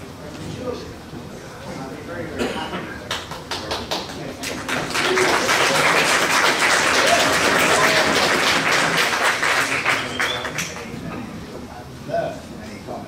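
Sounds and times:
audience applauding: 0:03.1 - 0:10.9.

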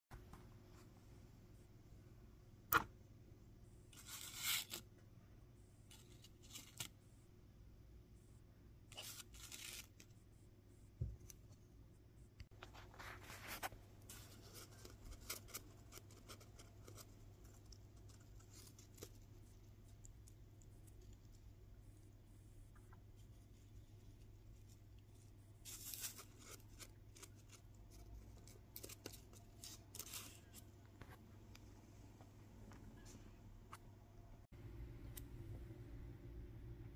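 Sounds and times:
paper rustles and scrapes: 0:03.9 - 0:04.8, 0:08.9 - 0:10.1, 0:12.5 - 0:19.3, 0:24.5 - 0:30.8
steady low hum: 0:09.9 - 0:36.9.

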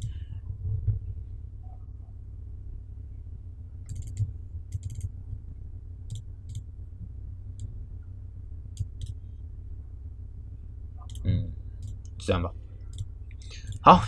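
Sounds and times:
steady low hum: 0:00.0 - 0:14.0
computer mouse clicking: 0:03.9 - 0:05.1, 0:08.8 - 0:09.2, 0:12.9 - 0:13.8.

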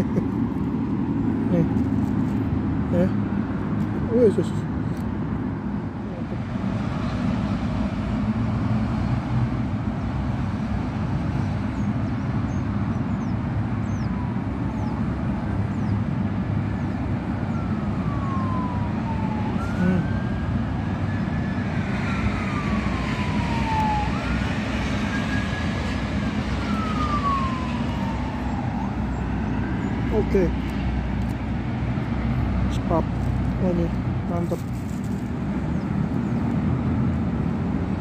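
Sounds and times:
road traffic rumble: 0:00.0 - 0:38.0
siren wailing: 0:13.8 - 0:15.4, 0:16.7 - 0:30.8.

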